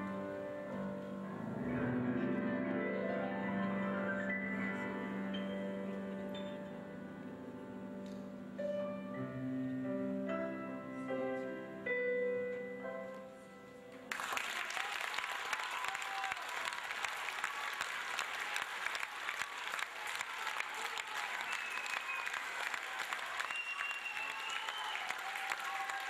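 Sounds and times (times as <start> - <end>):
grand piano notes ringing: 0.0 - 14.1
audience applause: 14.1 - 26.0.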